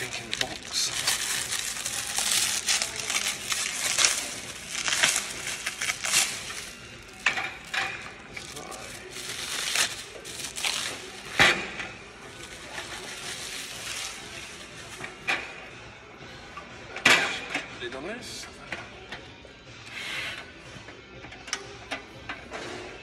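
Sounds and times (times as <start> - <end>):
plastic wrap crinkling: 0.0 - 11.7, 12.3 - 15.2.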